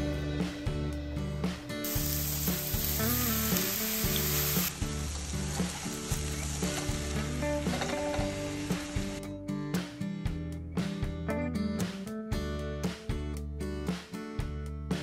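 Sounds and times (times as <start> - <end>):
background music: 0.0 - 15.0
burger patties sizzling: 1.8 - 9.2.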